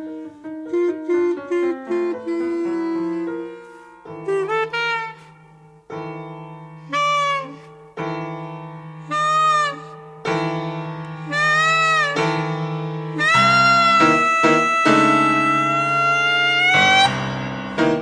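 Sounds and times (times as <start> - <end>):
piano chords ringing: 1.7 - 18.0
clarinet phrases bending in pitch: 9.0 - 10.0, 11.2 - 12.5, 13.1 - 17.2.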